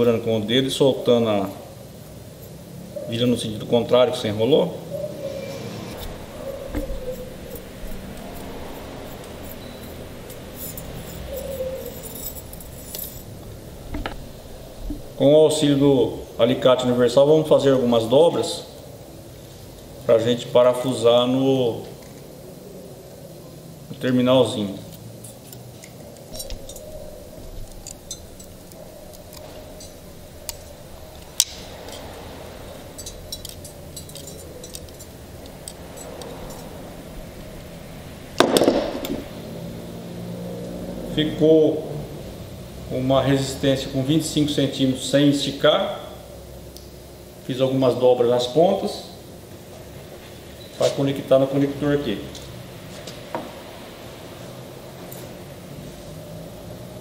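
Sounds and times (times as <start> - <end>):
wire scraping on metal rod: 5.2 - 13.3, 25.2 - 36.9
wire squeaks: 5.2 - 13.3, 26.3 - 32.2
pliers clicking on wire: 33.0 - 36.7.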